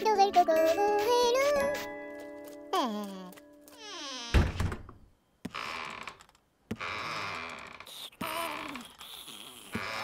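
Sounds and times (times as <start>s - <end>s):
cartoon creaking noise: 3.7s - 4.5s, 5.5s - 10.0s.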